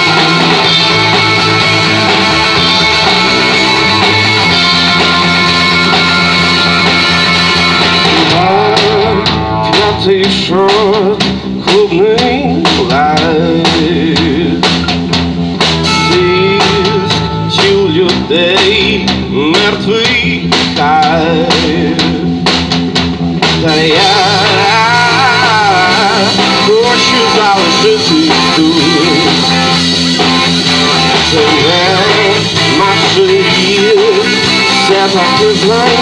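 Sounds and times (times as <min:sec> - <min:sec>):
bass guitar: 0:00.0 - 0:36.0
drum kit hits: 0:00.0 - 0:36.0
electric guitars: 0:00.0 - 0:36.0.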